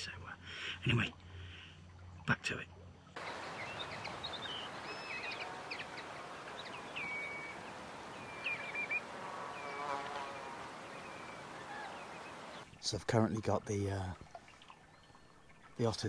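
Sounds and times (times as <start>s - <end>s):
birds chirping and whistling: 3.2s - 12.6s
steady hiss: 3.2s - 12.6s
low wavering call: 3.3s - 12.6s.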